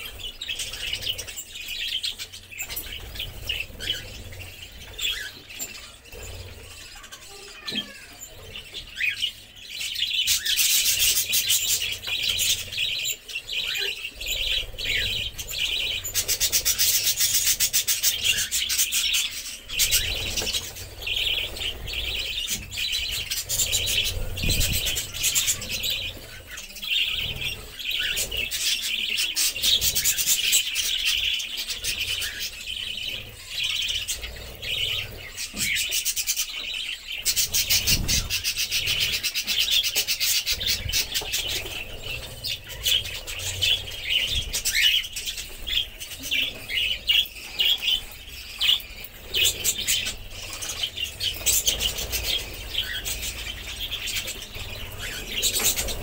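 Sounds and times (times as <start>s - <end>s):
budgerigars chattering: 0.0s - 56.0s.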